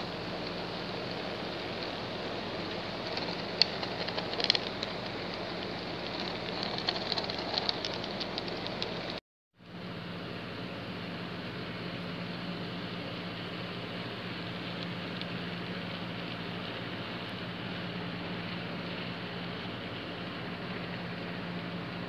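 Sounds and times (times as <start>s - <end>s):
wheels clicking over rail joints: 0.0s - 9.2s.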